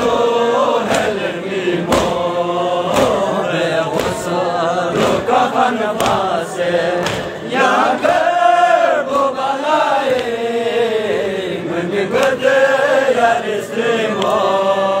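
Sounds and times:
men chanting slow elegy: 0:00.0 - 0:15.0
hands slapping chests: 0:00.8 - 0:01.2, 0:01.8 - 0:05.3, 0:05.9 - 0:06.4, 0:07.0 - 0:07.4, 0:10.0 - 0:10.4, 0:12.1 - 0:12.4, 0:14.1 - 0:14.5.

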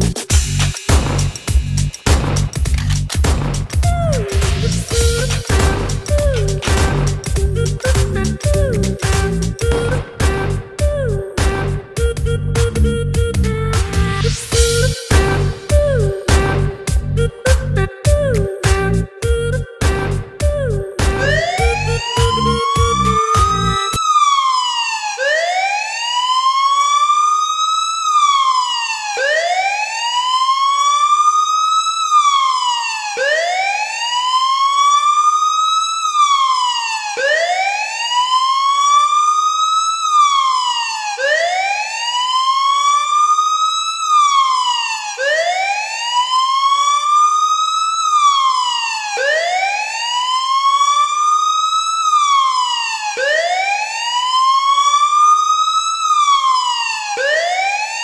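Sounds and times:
wailing siren: 0:03.8 - 0:58.0.

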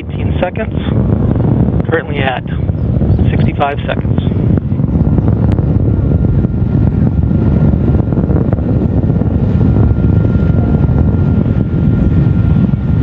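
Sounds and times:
rocket engines deep rumble: 0:00.0 - 0:13.0.

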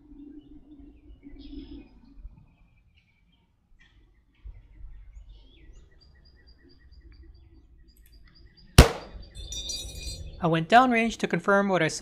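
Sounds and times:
faint low wind rumble: 0:00.0 - 0:12.0
small birds chirping: 0:00.1 - 0:11.4
rifle shot: 0:08.8 - 0:09.2.

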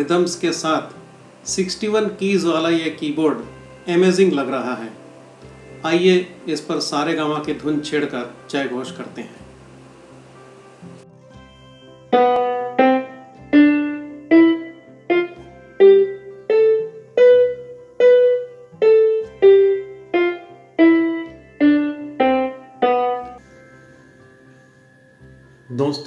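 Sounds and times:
electronic keyboard single notes: 0:12.1 - 0:23.5.

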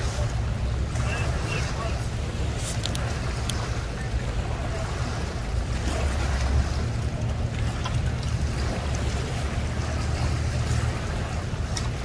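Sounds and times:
outboard motor running: 0:00.0 - 0:12.0
water wash: 0:00.0 - 0:12.0.

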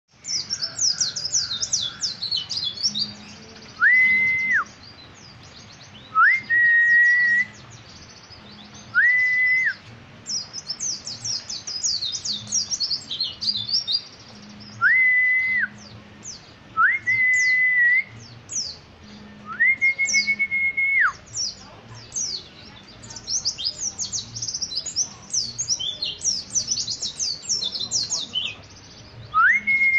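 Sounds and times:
bird twittering: 0:00.3 - 0:04.8.

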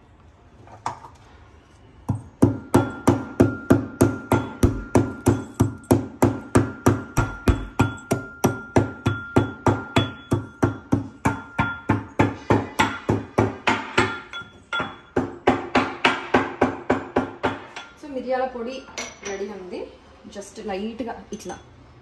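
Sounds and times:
metal pestle pounding in mortar: 0:02.1 - 0:17.8.

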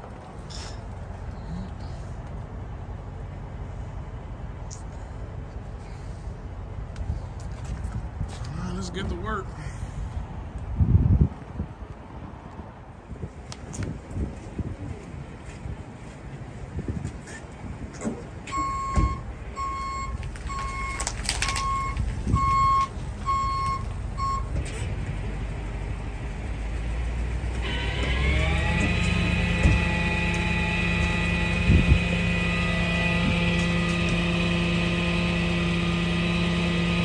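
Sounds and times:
backup alarm beeping: 0:18.5 - 0:24.5
truck engine revving: 0:18.8 - 0:37.0.

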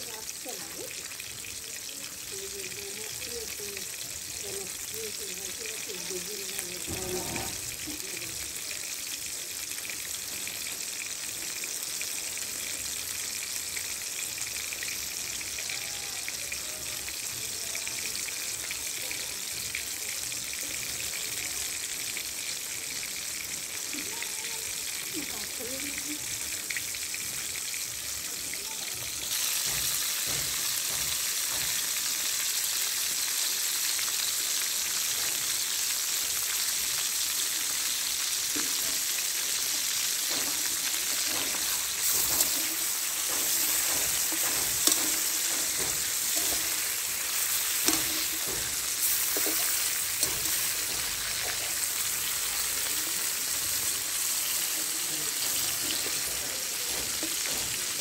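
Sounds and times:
chicken frying in hot oil: 0:00.0 - 0:58.0
metal spatula scraping pan: 0:06.9 - 0:07.7, 0:40.3 - 0:51.8.

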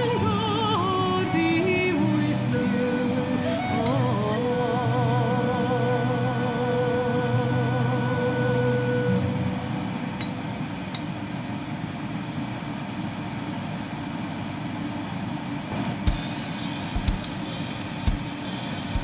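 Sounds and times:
music with singing: 0:00.0 - 0:09.5
low mechanical hum: 0:00.0 - 0:19.0
music with drums: 0:16.0 - 0:19.0.

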